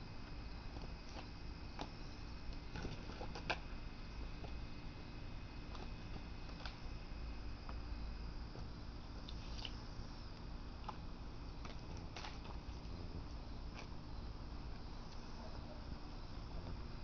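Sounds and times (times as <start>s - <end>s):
low background hiss: 0.0s - 17.0s.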